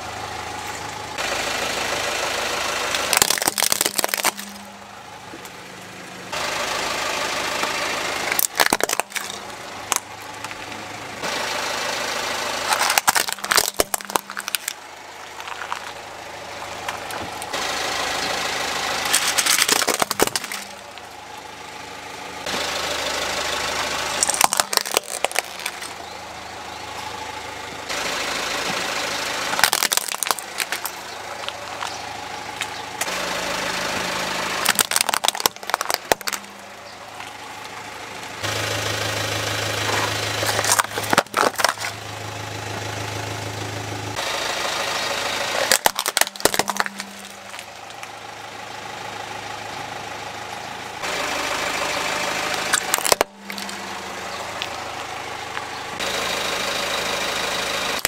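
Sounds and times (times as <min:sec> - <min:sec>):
car engine running: 0:00.0 - 0:58.0
plastic toys cracking under tyre: 0:02.9 - 0:04.7, 0:08.2 - 0:10.8, 0:12.6 - 0:16.0, 0:19.0 - 0:21.0, 0:24.1 - 0:26.0, 0:29.5 - 0:32.0, 0:34.6 - 0:36.6, 0:40.3 - 0:42.0, 0:45.6 - 0:48.1, 0:52.5 - 0:53.8.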